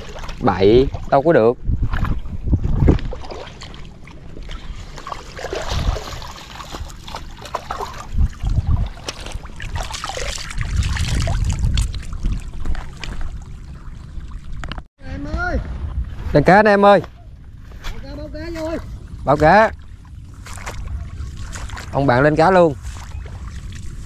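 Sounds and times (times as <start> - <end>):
water sloshing and splashing: 0.0 - 14.9, 17.4 - 24.0
dull low thumps: 0.3 - 3.3.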